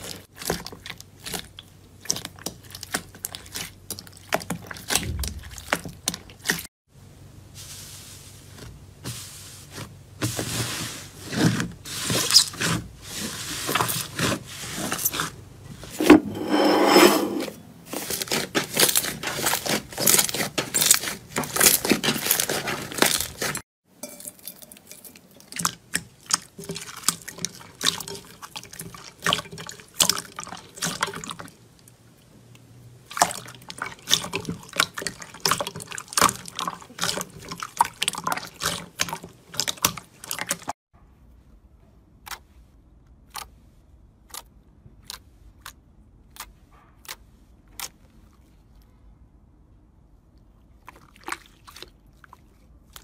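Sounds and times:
watery slime squelching: 0:00.0 - 0:06.7, 0:17.9 - 0:23.6, 0:25.2 - 0:32.0, 0:33.0 - 0:40.8, 0:44.2 - 0:49.0, 0:50.2 - 0:53.0.

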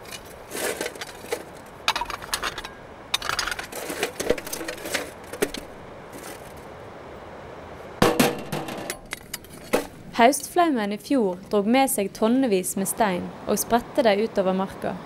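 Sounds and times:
stones clacking together: 0:00.9 - 0:06.5.

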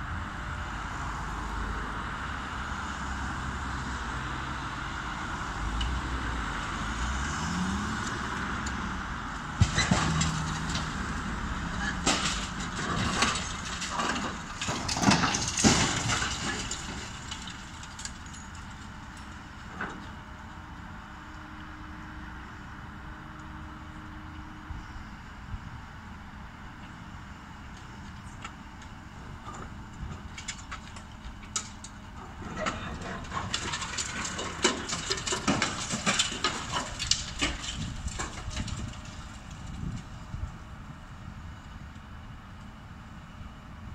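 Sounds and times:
concrete cracking and crunching: 0:09.4 - 0:20.0, 0:29.6 - 0:40.1.

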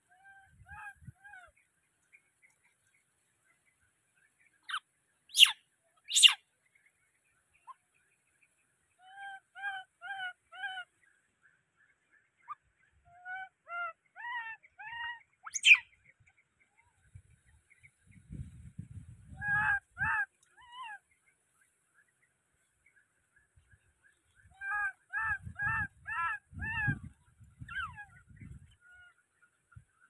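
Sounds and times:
baby monkey screaming: 0:05.4 - 0:06.4, 0:14.2 - 0:15.8.

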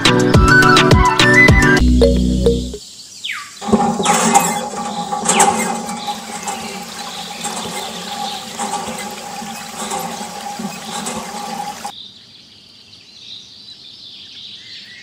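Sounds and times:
falling squeaks: 0:03.6 - 0:11.9
water running and splashing: 0:03.6 - 0:11.9.

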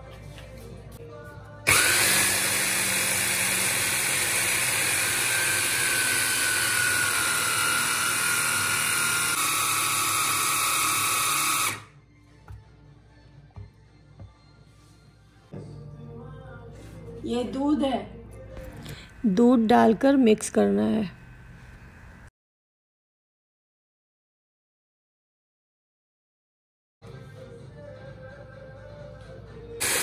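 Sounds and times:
hand blender whining: 0:01.7 - 0:11.9, 0:29.8 - 0:30.0.

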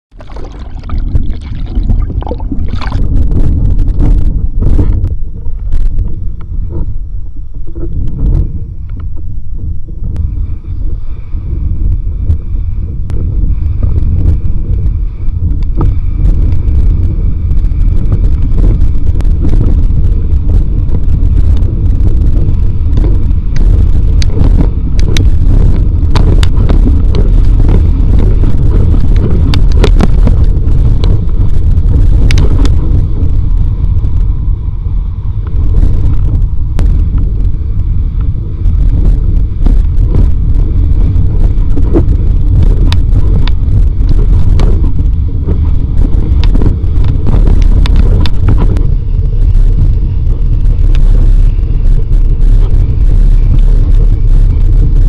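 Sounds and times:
wind buffeting camera: 0:00.1 - 0:55.0
water slaps and spray: 0:00.2 - 0:03.2.

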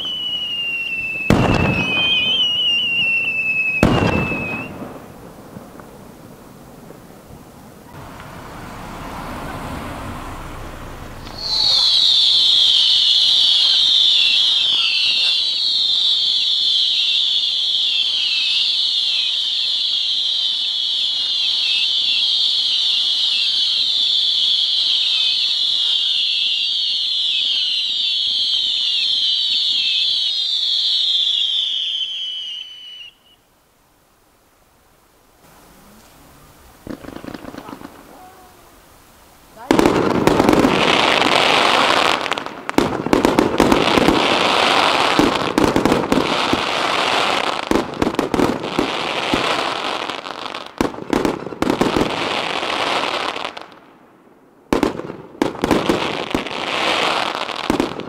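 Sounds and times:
whistling fireworks: 0:00.0 - 0:33.7, 0:35.4 - 0:58.0
rising rush of noise: 0:07.8 - 0:13.5.

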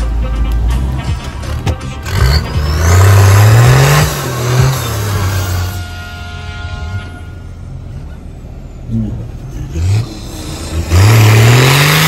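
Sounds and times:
engine revving in bursts: 0:01.5 - 0:05.8, 0:09.6 - 0:12.0.

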